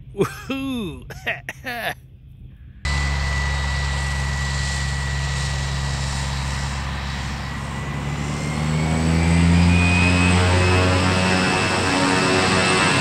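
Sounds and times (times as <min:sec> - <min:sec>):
turboprop engine whine: 0:02.5 - 0:13.0
propeller drone: 0:02.8 - 0:13.0.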